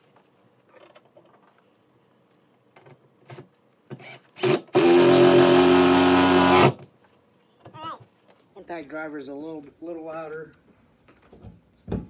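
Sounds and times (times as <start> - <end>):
cordless drill driving screw: 3.9 - 6.8.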